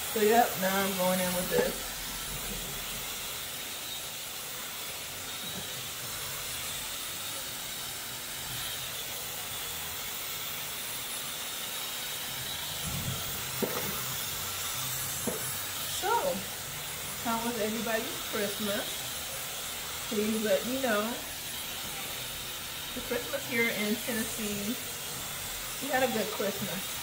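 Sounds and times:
hair dryer blowing air: 0:00.0 - 0:27.0.

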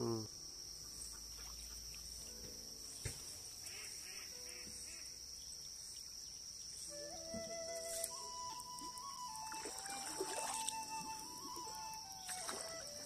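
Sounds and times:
faint chirping calls: 0:00.1 - 0:13.0
high-pitched insect drone: 0:03.7 - 0:13.0.

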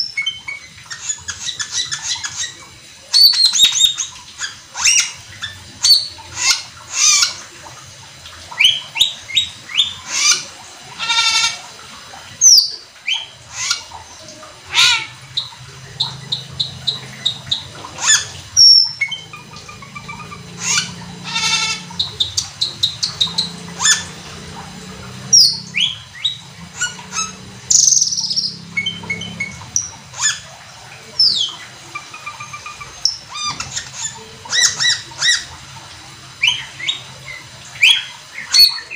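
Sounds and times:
starling singing: 0:12.4 - 0:35.6, 0:36.4 - 0:38.9.

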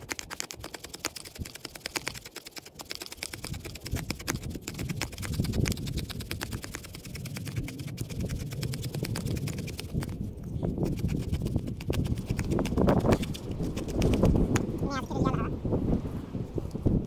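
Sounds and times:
knife carving wooden stick: 0:00.0 - 0:10.2, 0:10.8 - 0:14.7.

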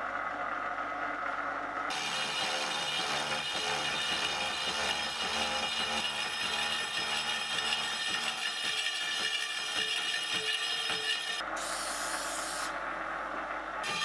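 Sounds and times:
milling machine saw cutting metal: 0:01.9 - 0:11.8.

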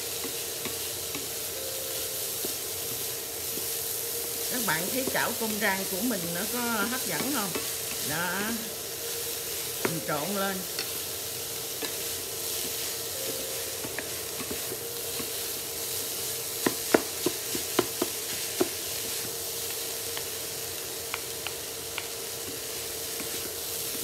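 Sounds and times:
fried rice sizzling in pan: 0:00.0 - 0:24.0.

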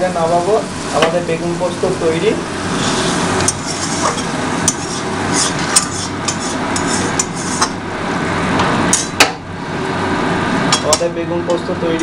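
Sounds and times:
gravy sizzling: 0:00.0 - 0:11.3
metal spatula scraping pan: 0:02.7 - 0:07.8.

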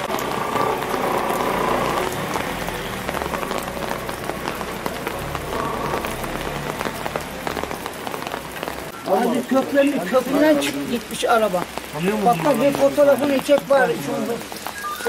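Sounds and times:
rain on pavement and cars: 0:00.0 - 0:15.0.

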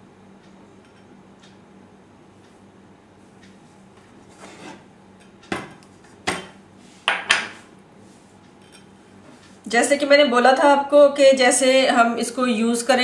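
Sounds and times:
dishes knocking and clinking: 0:04.4 - 0:07.6.

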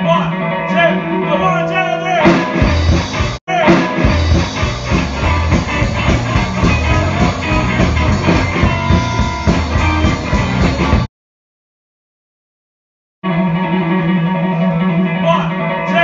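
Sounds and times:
bass guitar: 0:00.0 - 0:11.1, 0:13.2 - 0:16.0
electric guitar: 0:00.0 - 0:11.1, 0:13.2 - 0:16.0
drum kit beat: 0:02.2 - 0:11.1.

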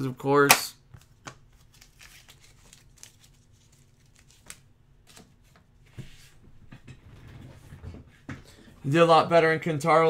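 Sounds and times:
cards rustling: 0:01.0 - 0:05.6.

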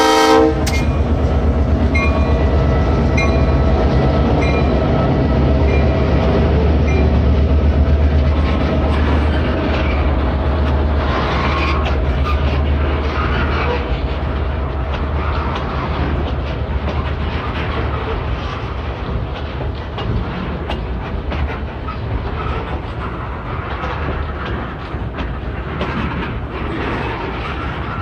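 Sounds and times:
diesel locomotive rumbling: 0:00.0 - 0:28.0
train wheels clicking over rail: 0:00.5 - 0:02.4, 0:08.0 - 0:28.0.

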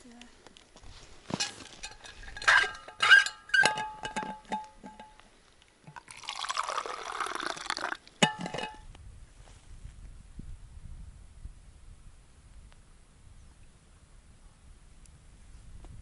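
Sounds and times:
drink pouring into metal cup: 0:05.8 - 0:08.8.

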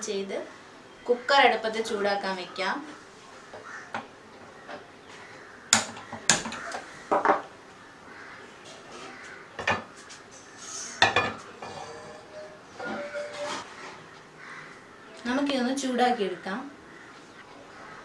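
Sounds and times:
pot clanking on metal supports: 0:11.0 - 0:13.7.

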